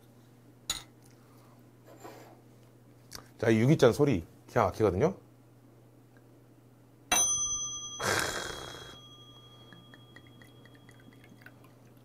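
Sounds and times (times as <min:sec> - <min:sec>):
brass cup ringing: 0:07.1 - 0:11.7
liquid pouring into cup: 0:09.7 - 0:12.0.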